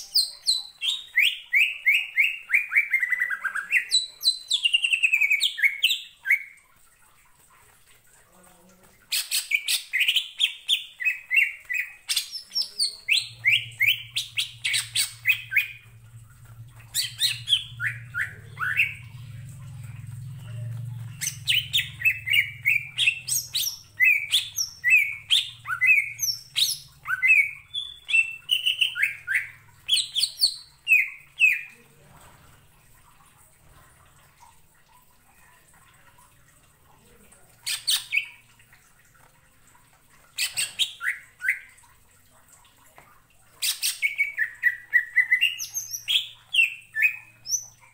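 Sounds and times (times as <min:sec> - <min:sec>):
faint low hum: 0:12.4 - 0:43.6.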